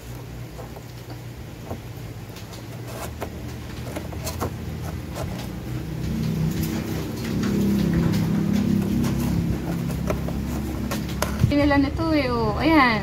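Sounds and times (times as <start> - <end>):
puppy chewing cardboard: 0.0 - 11.6
low engine hum: 3.2 - 13.0.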